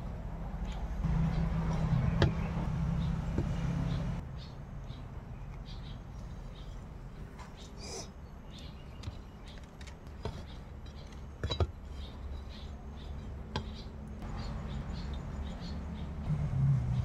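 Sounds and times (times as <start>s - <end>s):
steady low hum: 0.0s - 9.5s.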